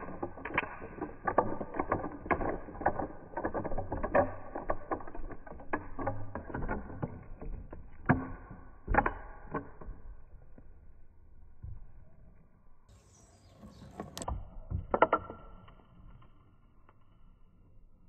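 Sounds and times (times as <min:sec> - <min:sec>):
wooden boards clacking: 0:00.0 - 0:10.2
ball rolling rumble: 0:00.0 - 0:17.5.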